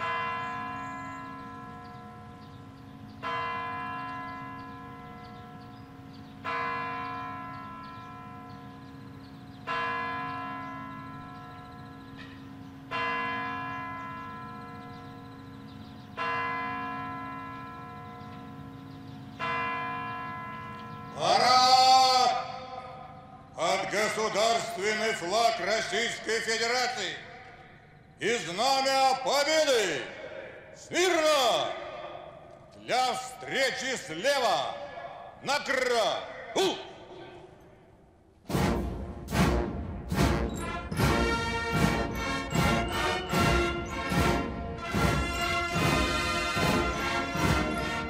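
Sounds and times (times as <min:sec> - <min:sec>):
large clock bell striking: 0:00.0 - 0:27.8, 0:40.5 - 0:48.0.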